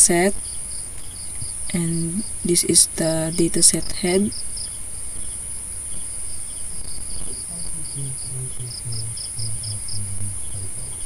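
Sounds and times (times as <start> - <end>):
crickets chirping: 0.0 - 11.0
faint low pulsing sound: 7.2 - 11.0.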